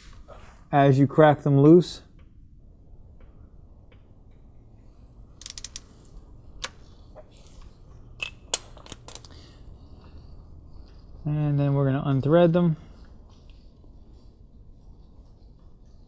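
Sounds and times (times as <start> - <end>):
hand ratchet clicking: 5.4 - 5.9.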